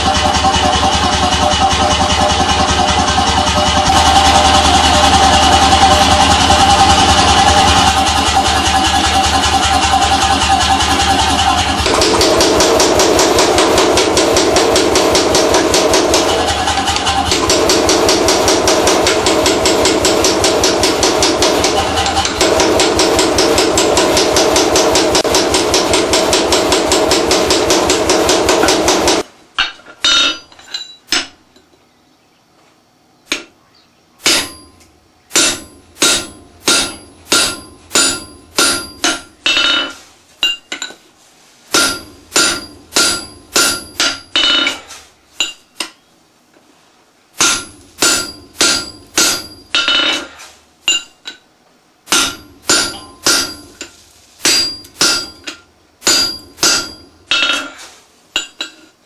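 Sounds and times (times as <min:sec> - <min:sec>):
pneumatic hammer pounding steel: 0:00.0 - 0:31.4, 0:34.2 - 0:41.0, 0:41.7 - 0:45.9, 0:47.4 - 0:51.4, 0:52.1 - 0:58.9
hand hammer clanging on anvil: 0:18.4 - 0:31.4, 0:34.2 - 0:41.0, 0:41.7 - 0:46.0, 0:47.4 - 0:51.4, 0:52.1 - 0:57.8, 0:58.4 - 0:58.9.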